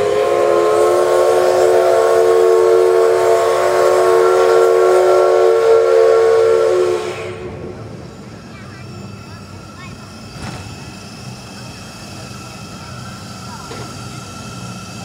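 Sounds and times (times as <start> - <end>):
steam locomotive whistle: 0.0 - 7.9
steam hissing: 0.0 - 15.0.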